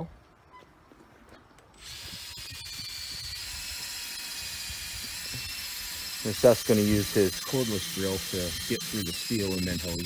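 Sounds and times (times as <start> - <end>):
cordless drill whining: 1.8 - 10.0.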